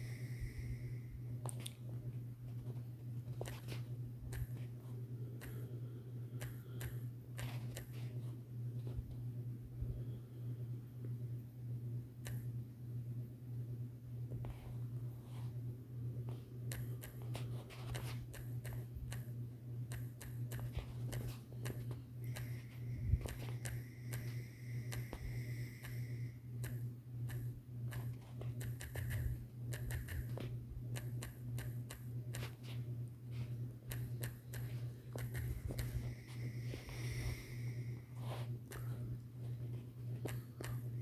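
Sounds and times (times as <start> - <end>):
faint high whine: 0.0 - 18.8, 19.9 - 30.3, 32.4 - 41.0
pulsing low hum: 0.0 - 41.0
typing on phone screen: 26.6 - 30.3.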